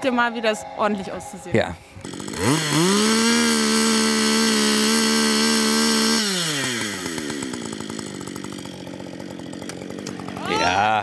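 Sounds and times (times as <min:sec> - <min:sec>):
chainsaw revving and idling: 0:02.0 - 0:11.0.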